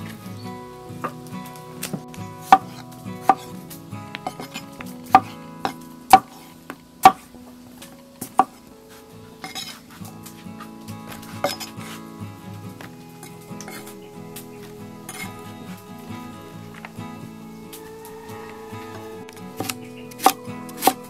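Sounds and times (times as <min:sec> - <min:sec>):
quiet background music: 0:00.0 - 0:21.0.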